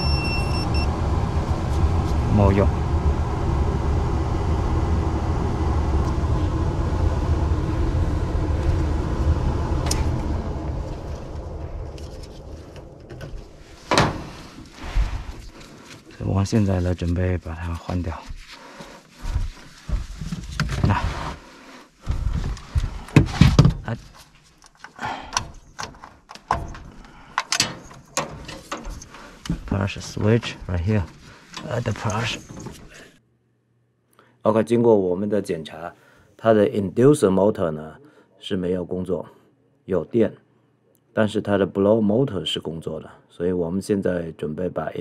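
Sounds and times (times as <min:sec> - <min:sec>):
furnace blower fan rumble: 0:00.0 - 0:17.1
knocks and thunks in furnace cabinet: 0:13.9 - 0:14.3.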